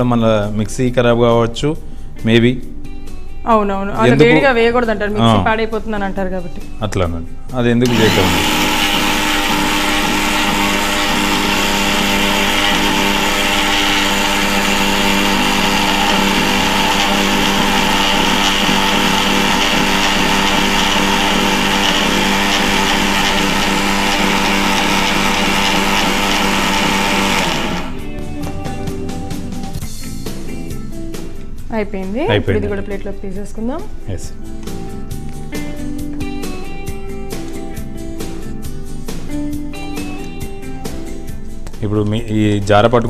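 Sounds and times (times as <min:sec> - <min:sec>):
mixer grinder running: 0:07.8 - 0:28.2.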